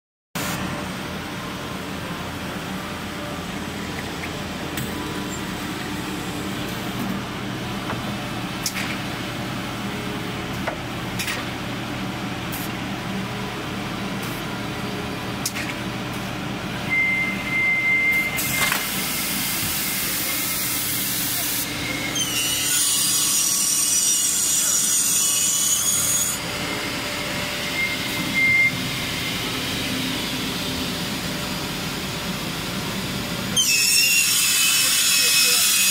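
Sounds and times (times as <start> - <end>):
machine high whine: 0.4 - 10.8, 16.4 - 35.9
edge cutting saw humming: 18.4 - 35.9.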